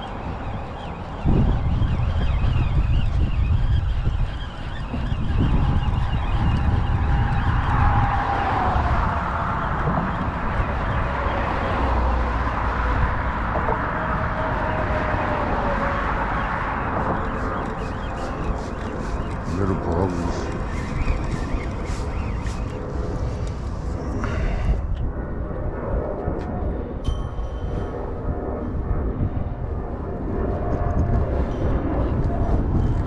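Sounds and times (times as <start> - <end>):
road traffic rushing: 0.0 - 25.0
faint vehicle whine: 0.0 - 33.0.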